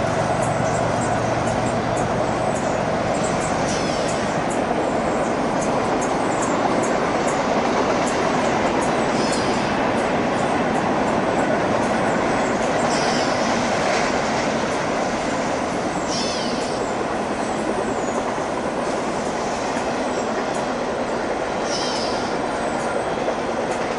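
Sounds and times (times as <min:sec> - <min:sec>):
freight train wheels rumbling on rails: 0:00.0 - 0:23.9.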